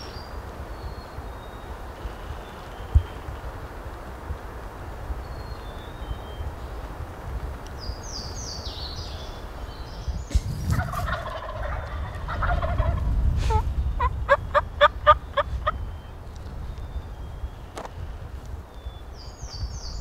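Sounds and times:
turkey gobbling: 10.7 - 15.8.

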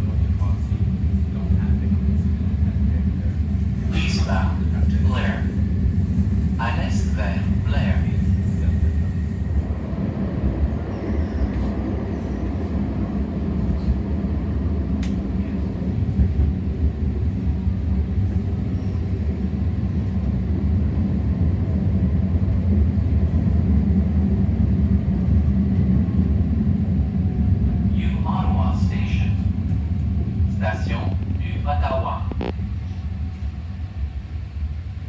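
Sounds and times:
light rail car rumble: 0.0 - 35.0
sharp click: 15.0 - 15.2.

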